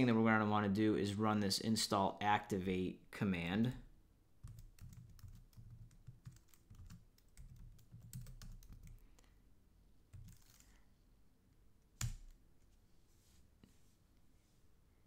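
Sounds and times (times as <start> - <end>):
faint keyboard typing: 4.4 - 9.4, 10.1 - 10.8.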